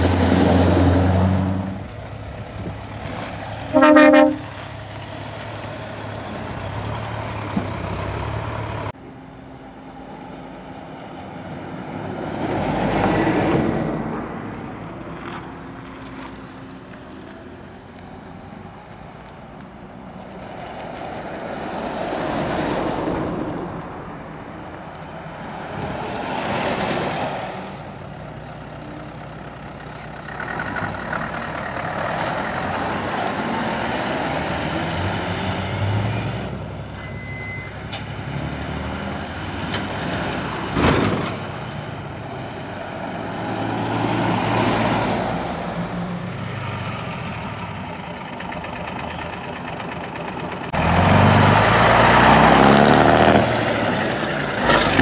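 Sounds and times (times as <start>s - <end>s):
lorries driving past: 0.0s - 55.0s
truck engine pulling up close: 0.0s - 55.0s.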